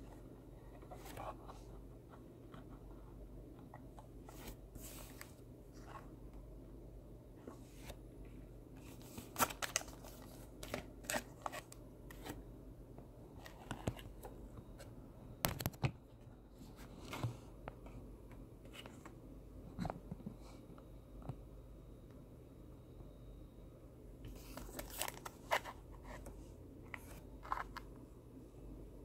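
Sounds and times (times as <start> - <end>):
cards and foil pack crinkling: 9.1 - 12.3, 24.4 - 25.8.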